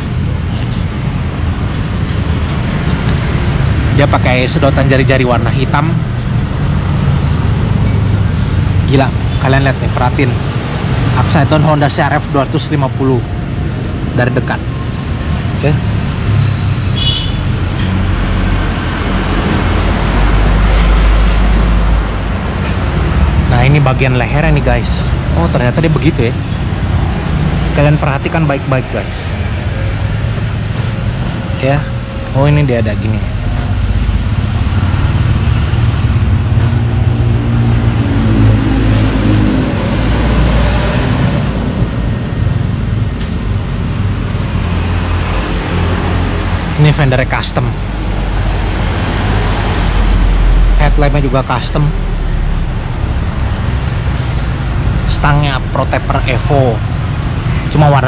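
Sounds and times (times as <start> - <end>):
traffic rumble: 0.0 - 58.0
engine low hum: 47.8 - 57.7.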